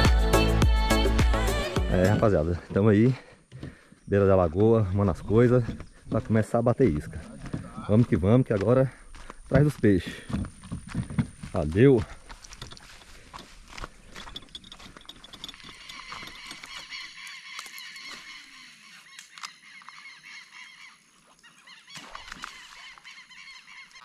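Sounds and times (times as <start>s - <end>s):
birds squawking: 15.5s - 24.0s.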